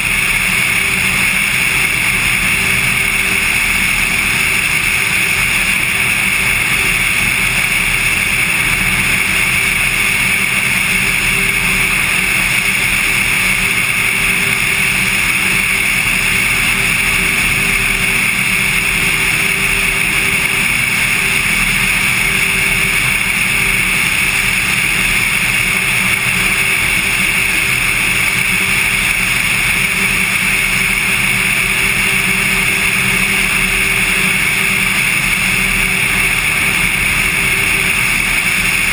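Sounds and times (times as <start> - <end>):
airplane engine and propeller drone: 0.0 - 38.9.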